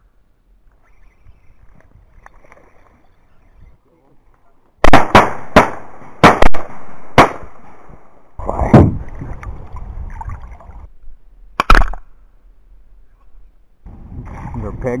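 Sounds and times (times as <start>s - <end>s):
shotgun shots: 4.8s - 7.9s.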